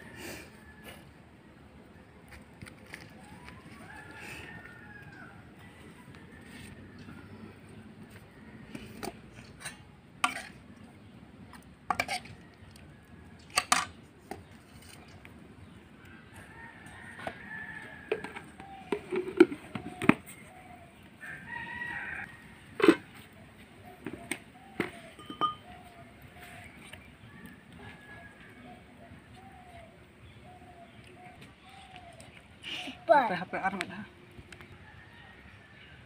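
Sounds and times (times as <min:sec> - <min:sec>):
rooster crowing: 0:03.2 - 0:07.4, 0:21.2 - 0:23.0.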